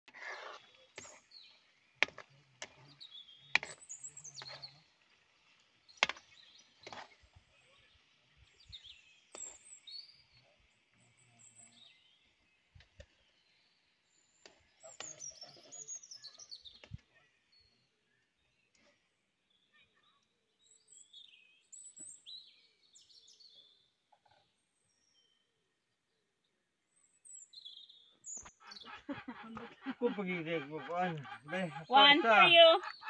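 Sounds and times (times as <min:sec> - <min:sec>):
birds chirping: 0:00.2 - 0:18.9, 0:26.9 - 0:33.0.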